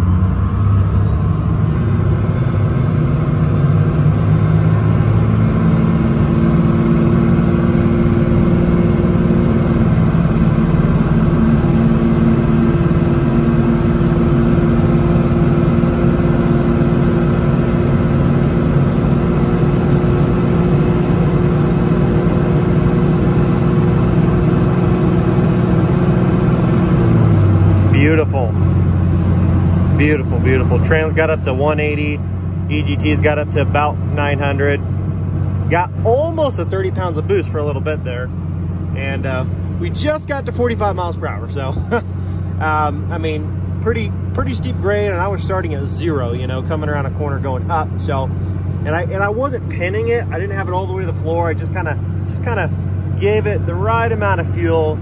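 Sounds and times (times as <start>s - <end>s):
diesel engine pulling under load: 0.0s - 55.0s
high turbo whistle: 0.8s - 3.5s, 4.6s - 15.7s, 18.2s - 29.9s.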